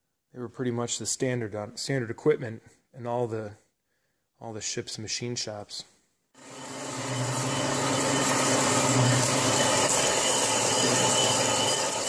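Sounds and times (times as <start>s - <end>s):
cutting tool hissing in steel: 6.4s - 12.0s
lathe droning: 6.4s - 12.0s.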